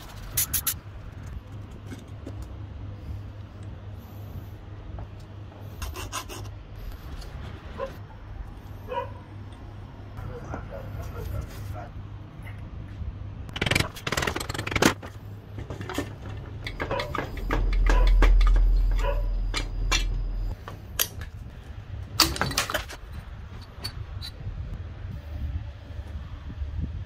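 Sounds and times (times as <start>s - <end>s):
low rumble: 16.5s - 22.2s.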